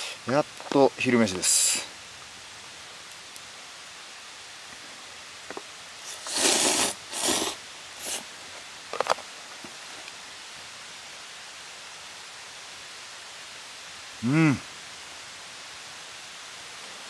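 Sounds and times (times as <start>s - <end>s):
steady hiss: 0.0s - 17.0s
person slurping noodles: 6.1s - 8.2s.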